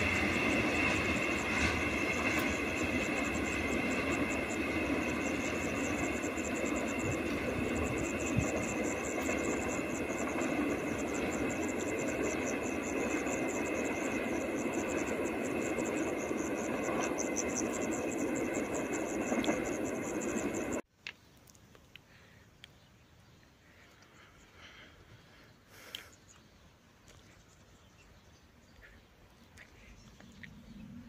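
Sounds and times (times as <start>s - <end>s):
train rumbling on track: 0.0s - 20.8s.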